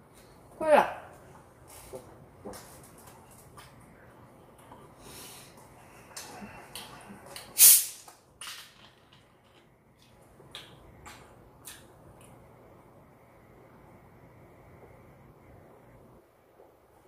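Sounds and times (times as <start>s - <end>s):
carbonation hissing from bottle: 7.6s - 8.1s.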